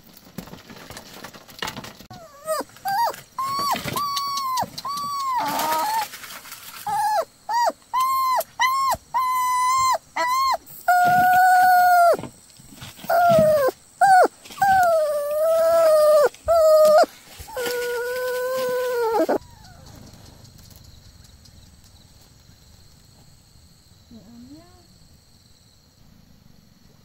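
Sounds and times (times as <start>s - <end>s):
puppy whining and crying: 2.1s - 6.2s, 6.8s - 12.3s, 13.0s - 20.0s.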